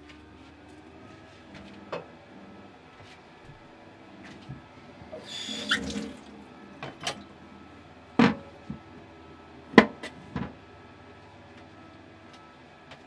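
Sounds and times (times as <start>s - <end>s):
kitchen tap running: 5.2s - 7.3s.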